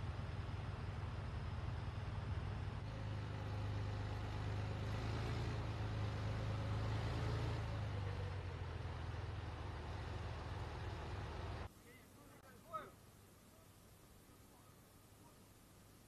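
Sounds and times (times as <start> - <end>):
heavy truck engine rumbling: 0.0 - 11.7.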